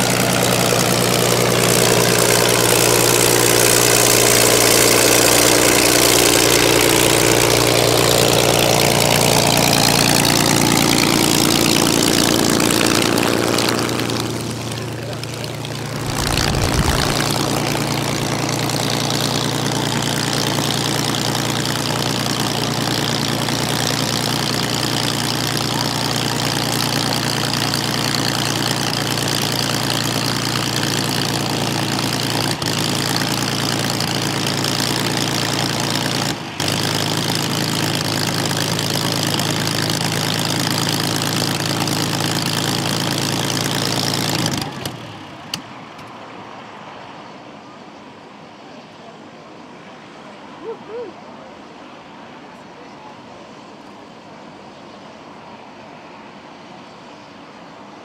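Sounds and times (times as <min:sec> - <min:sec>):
aircraft engine idling: 0:00.0 - 0:46.1.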